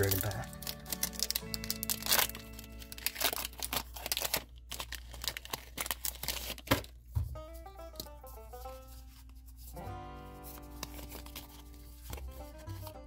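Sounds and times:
foil pack tearing and crinkling: 0:00.0 - 0:07.0.

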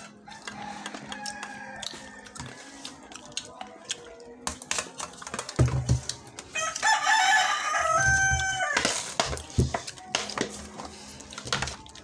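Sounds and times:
rooster crowing: 0:00.2 - 0:02.4, 0:06.6 - 0:09.0.

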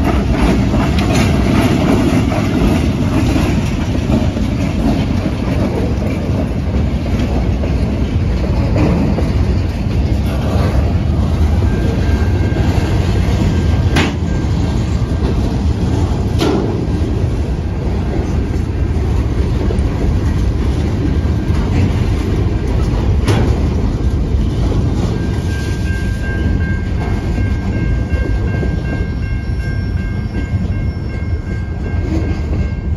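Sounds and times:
train wheels rumbling on rail: 0:00.0 - 0:32.9
high ringing tone: 0:11.3 - 0:15.1, 0:24.8 - 0:32.9.

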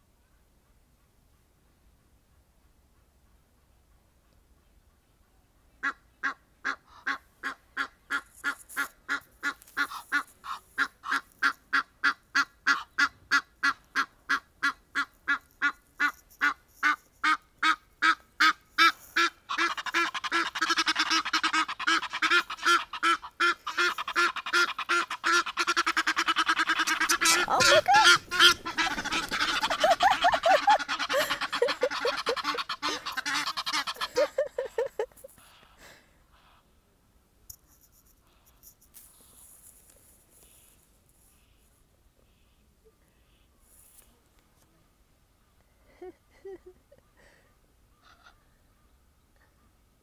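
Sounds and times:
geese honking: 0:05.8 - 0:35.0
geese cackling chorus: 0:05.8 - 0:35.6.

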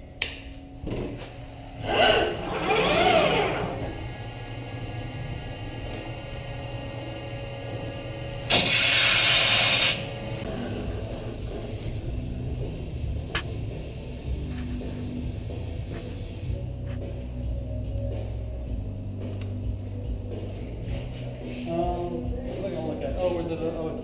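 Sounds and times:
machine spindle whining: 0:00.1 - 0:24.0
loud rushing hiss: 0:08.5 - 0:10.1.

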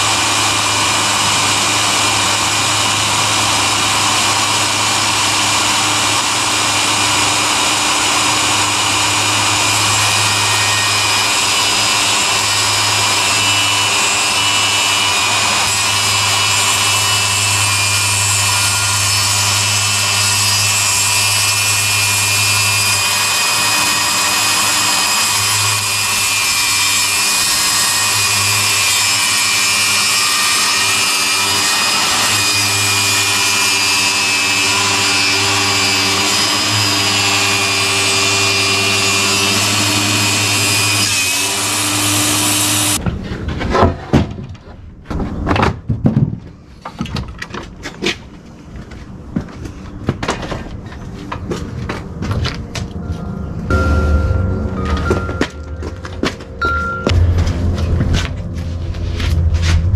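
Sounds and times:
table saw cutting wood: 0:00.0 - 0:43.0, 0:53.7 - 0:57.2.

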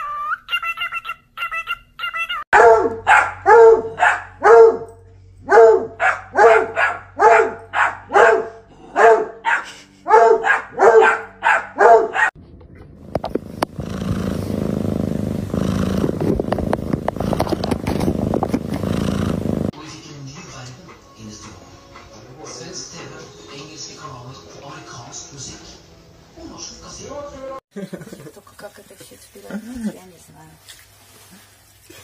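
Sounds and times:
cockatiel chirps: 0:00.0 - 0:02.4
dog barking: 0:02.5 - 0:12.4
low rustling rumble: 0:12.4 - 0:19.7.

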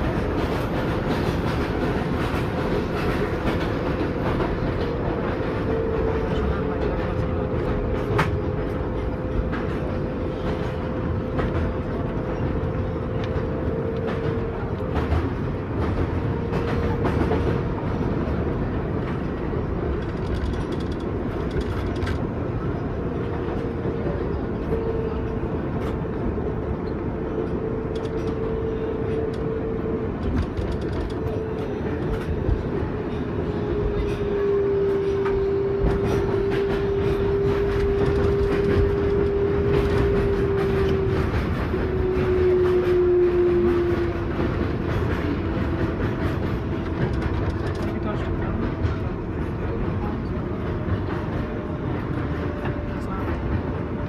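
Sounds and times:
train wheels rumbling on track: 0:00.0 - 0:54.0
clicks from rail joints: 0:19.0 - 0:22.3, 0:24.6 - 0:33.1, 0:35.0 - 0:43.0.

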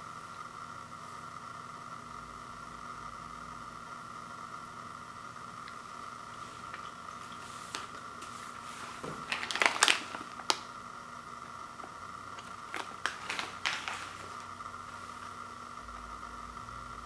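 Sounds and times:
plastic pouch crinkling: 0:06.4 - 0:10.8, 0:11.8 - 0:15.4.

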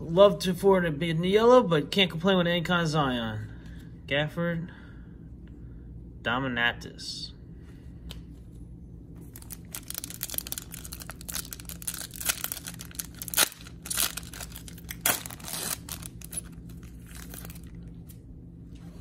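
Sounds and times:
plastic wrapper crinkling: 0:09.3 - 0:18.2
plastic wrapper ripping: 0:09.3 - 0:18.2.

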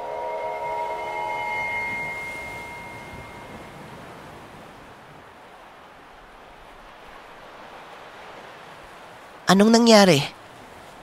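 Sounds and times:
held high tone: 0:00.0 - 0:03.8
soft steady rushing noise: 0:00.0 - 0:11.0.

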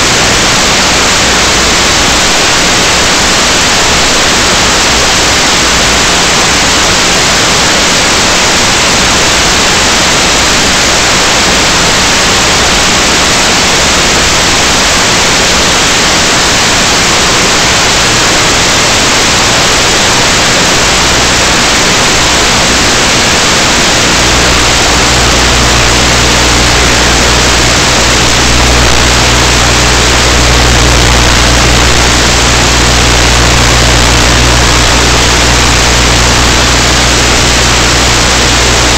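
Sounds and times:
static hiss: 0:00.0 - 0:38.9
low hum: 0:22.3 - 0:38.9.

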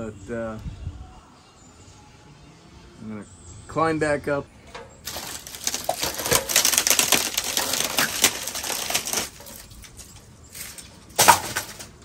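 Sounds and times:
rotten wood cracking and crunching: 0:05.0 - 0:12.0.

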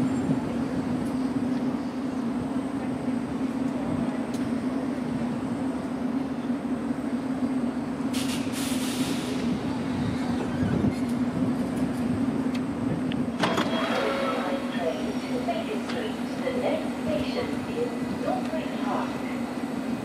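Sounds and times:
train equipment humming: 0:00.0 - 0:20.0
brief hiss: 0:08.1 - 0:09.5.

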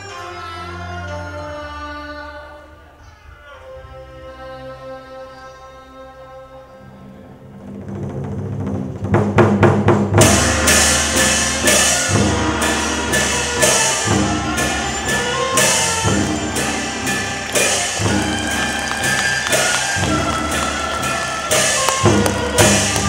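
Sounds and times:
sustained instrumental music: 0:03.5 - 0:23.0
drum strokes: 0:07.7 - 0:23.0.

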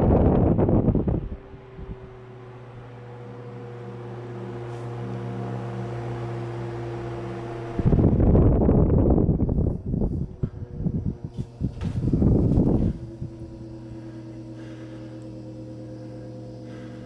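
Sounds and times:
wind noise on microphone: 0:00.0 - 0:02.3, 0:07.6 - 0:13.6
fan motor humming: 0:00.0 - 0:17.0.

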